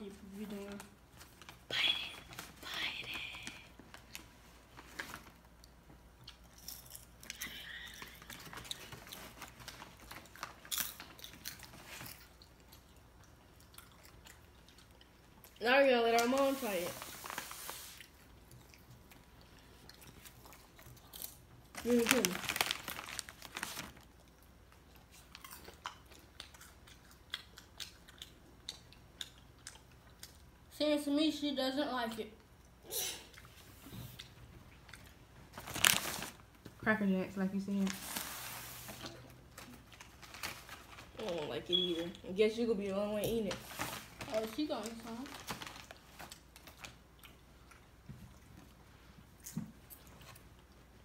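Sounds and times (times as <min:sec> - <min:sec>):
popcorn crunching and chewing: 0:04.9 - 0:16.5, 0:17.1 - 0:30.7, 0:44.1 - 0:51.0.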